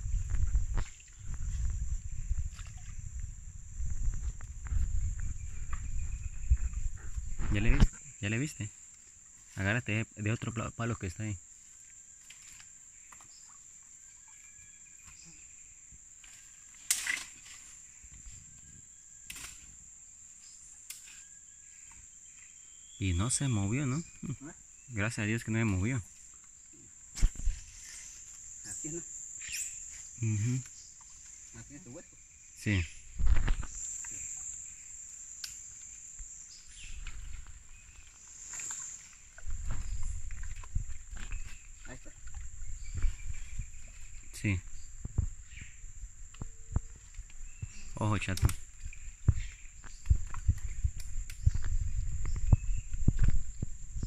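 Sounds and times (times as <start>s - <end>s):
insects droning: 0.0s - 54.0s
dry branches cracking: 16.2s - 17.7s, 19.2s - 19.7s
high-pitched insect buzz: 26.5s - 31.8s, 32.4s - 48.1s.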